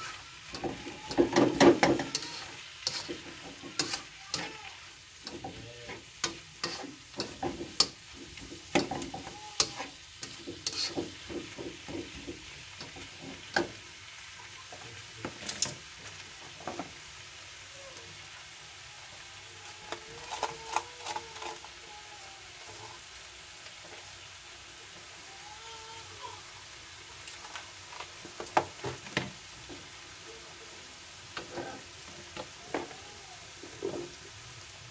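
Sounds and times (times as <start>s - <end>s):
spatula scraping a wok: 0.0s - 14.0s, 19.6s - 24.4s, 31.4s - 32.5s
vegetables sizzling: 0.0s - 34.9s.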